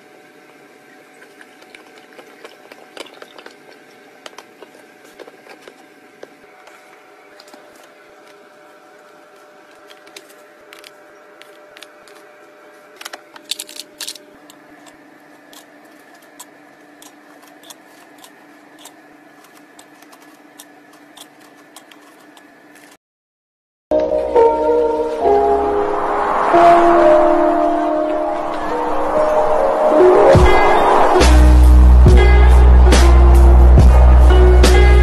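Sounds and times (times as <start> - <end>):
steady hum: 23.9 - 35.0.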